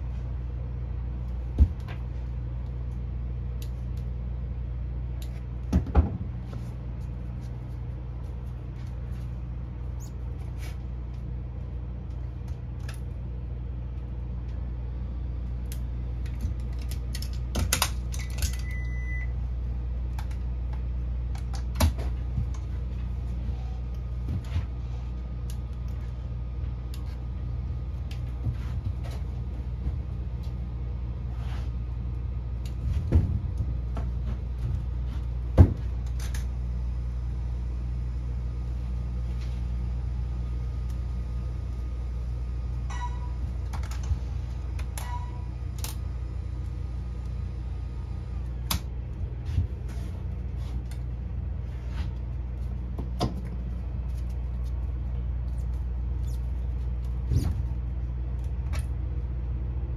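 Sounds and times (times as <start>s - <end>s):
steady low hum: 0.0s - 59.9s
short high beep: 42.9s - 43.4s.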